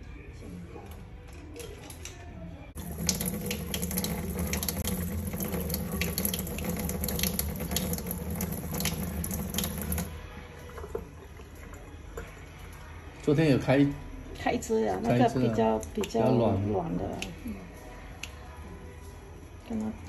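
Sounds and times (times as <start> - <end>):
tap water running into sink: 2.8 - 12.3.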